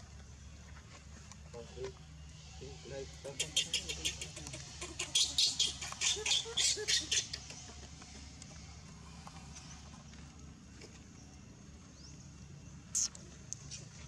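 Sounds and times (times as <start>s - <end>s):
baby monkey screaming: 3.3s - 7.5s.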